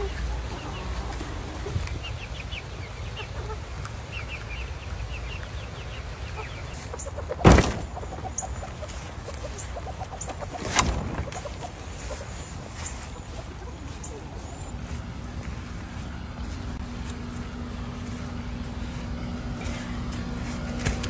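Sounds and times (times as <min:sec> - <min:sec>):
chickens clucking: 0:00.0 - 0:21.0
loud thumps: 0:07.4 - 0:08.0, 0:10.6 - 0:11.4.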